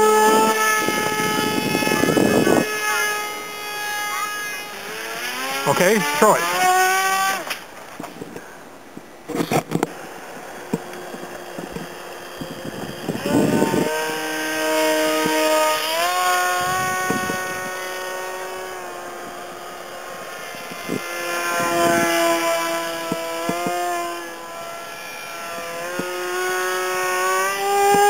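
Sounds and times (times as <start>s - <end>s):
propeller motor whining: 0.0s - 28.0s.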